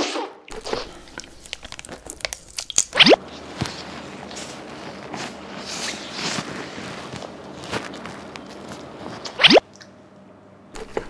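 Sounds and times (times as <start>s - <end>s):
crunching bites of a snack: 0.5s - 3.8s
soft eating noise: 0.5s - 11.0s.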